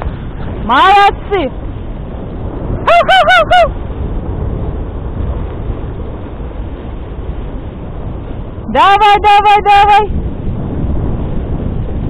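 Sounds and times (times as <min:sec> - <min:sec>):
sled rushing over snow: 0:00.0 - 0:12.0
person giving hooting calls: 0:02.8 - 0:03.8.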